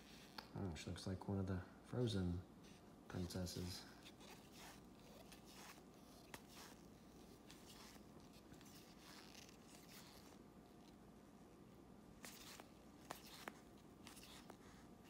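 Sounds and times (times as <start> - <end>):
trading cards rustling in hands: 2.7 - 11.0, 12.2 - 15.0.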